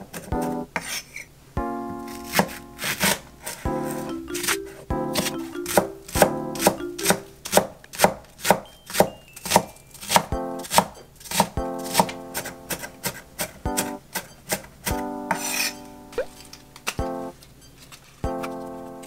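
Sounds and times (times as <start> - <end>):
knife chopping on wooden board: 7.4 - 13.9.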